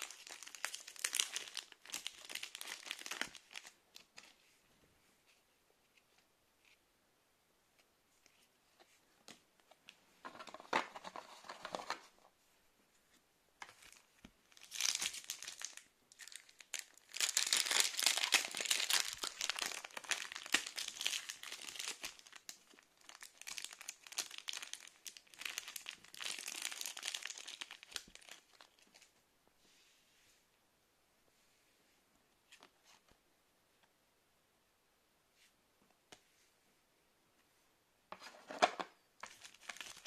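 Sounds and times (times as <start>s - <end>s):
foil wrapper crinkling and tearing: 0.0s - 4.1s, 13.9s - 28.9s, 39.2s - 40.0s.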